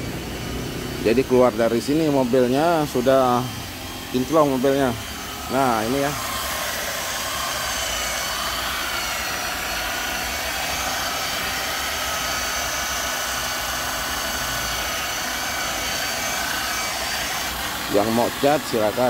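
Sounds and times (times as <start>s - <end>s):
electric car polisher whining: 0.0s - 19.0s.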